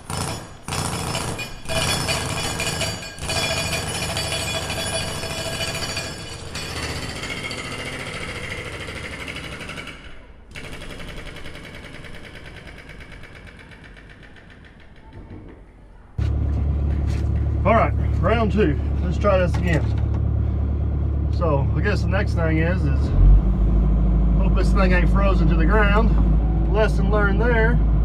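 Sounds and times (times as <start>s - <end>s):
rattling metal clatter: 19.0s - 20.3s.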